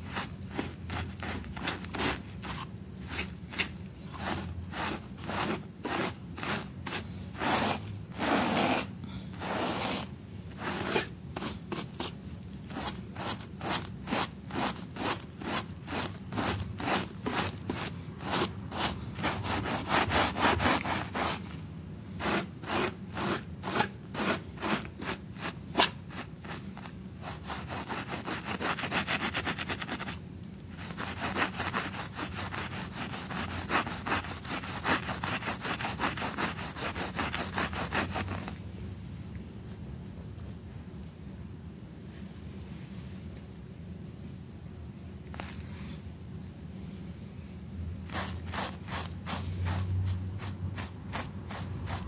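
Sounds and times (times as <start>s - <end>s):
brush scrubbing wet rug: 0.0s - 21.5s, 22.2s - 30.1s, 30.8s - 38.5s, 48.1s - 52.0s.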